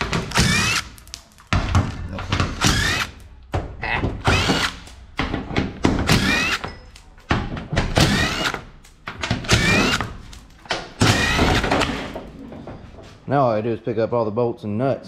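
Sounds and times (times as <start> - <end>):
power driver whining: 2.5 - 3.3, 4.2 - 5.0, 6.0 - 7.0, 7.9 - 12.1.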